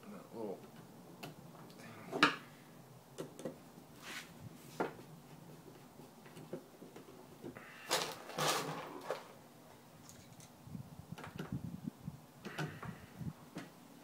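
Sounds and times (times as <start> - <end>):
plastic parts clattering on table: 7.9 - 9.4.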